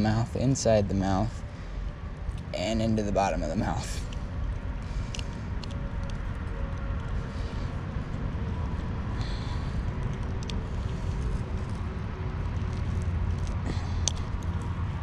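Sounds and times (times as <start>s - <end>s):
low outdoor rumble: 0.0s - 15.0s
faint clicks and rustles: 3.4s - 15.0s.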